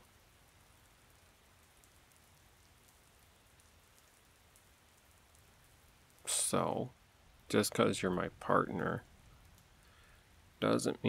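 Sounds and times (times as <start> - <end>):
scattered raindrops: 0.0 - 11.0
soft rain hiss: 0.0 - 11.0.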